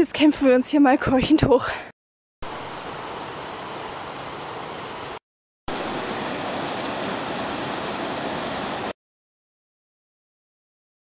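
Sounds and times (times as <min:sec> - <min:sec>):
stream rushing over boulders: 0:02.4 - 0:08.9.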